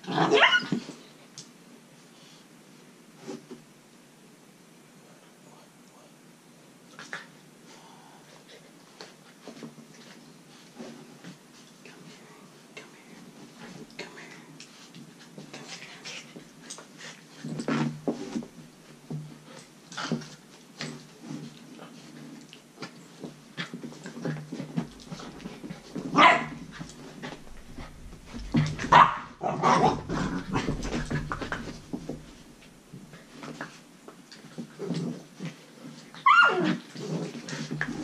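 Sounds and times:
puppies scuffling: 14.7 - 38.0
puppies barking and yapping: 27.6 - 32.3.

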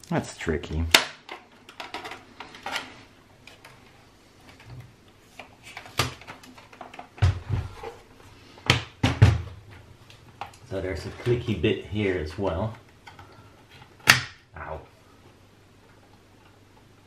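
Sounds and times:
amplifier chassis knocks and thumps: 8.7 - 9.6.

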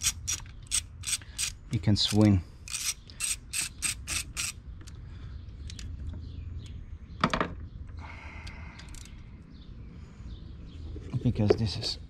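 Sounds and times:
hand ratchet clicking: 0.0 - 5.0.

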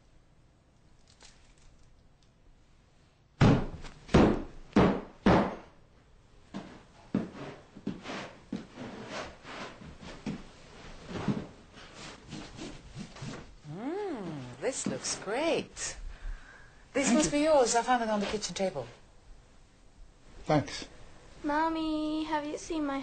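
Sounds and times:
heavy footsteps on floor: 6.5 - 8.8.

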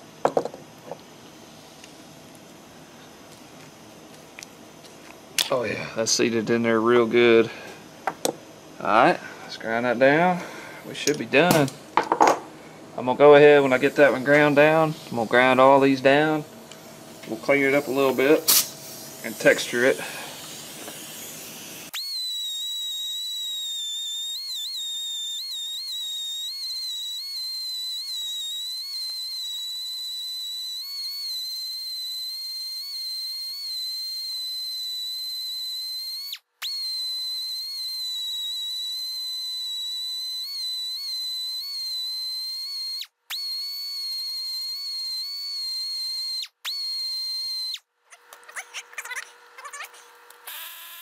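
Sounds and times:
hand-held grinder whining on metal: 48.2 - 51.0.

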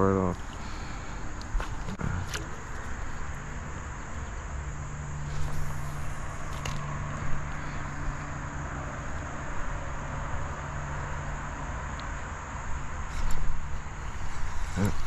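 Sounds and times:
insects buzzing: 0.0 - 15.0.

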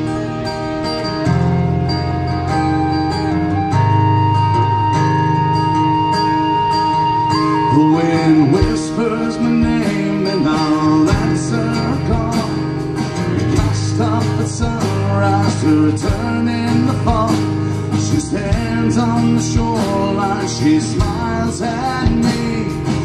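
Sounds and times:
electric bass: 0.0 - 23.0
lead melody: 0.0 - 23.0
strummed acoustic guitar: 0.0 - 23.0
drum kit: 8.5 - 23.0.

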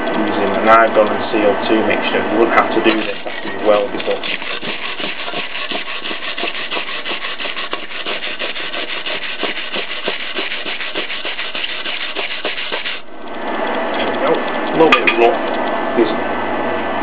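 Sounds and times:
wire brush scrubbing metal: 2.2 - 13.1.

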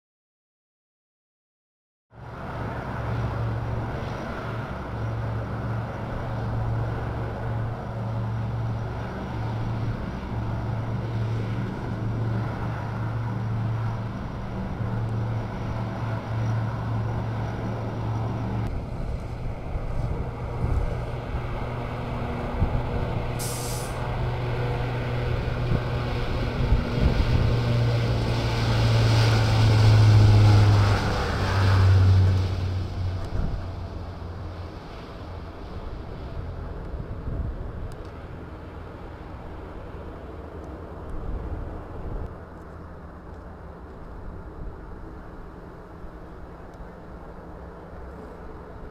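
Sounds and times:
turboprop propeller drone: 2.1 - 48.9.

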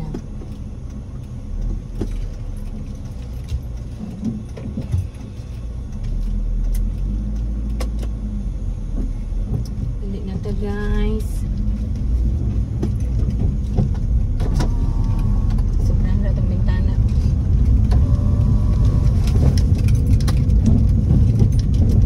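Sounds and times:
light clicks and rattles: 0.0 - 8.2
engine and road noise rumble: 0.0 - 22.0.

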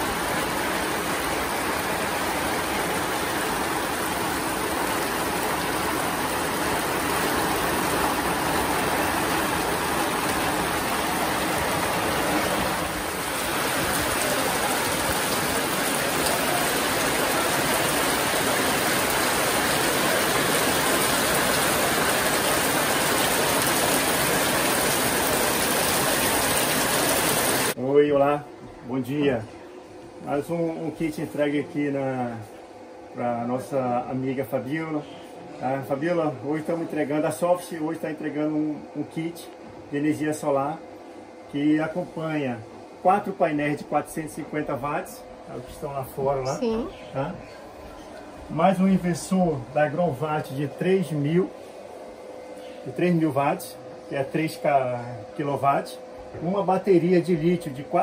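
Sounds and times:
heavy rain on wooden boards: 0.0 - 27.8.

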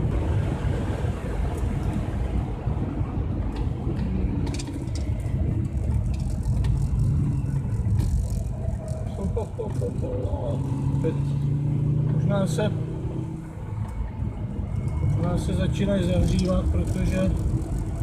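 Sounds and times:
tyre and road noise on wet track: 0.0 - 18.0
car engine running: 3.5 - 18.0
sharp ticks: 4.5 - 9.8, 16.1 - 18.0.

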